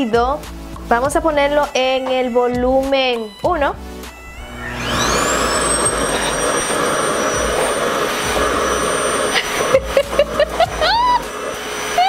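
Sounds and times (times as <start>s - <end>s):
hair dryer suction motor whine: 4.0s - 12.0s
woman laughing: 9.3s - 12.0s.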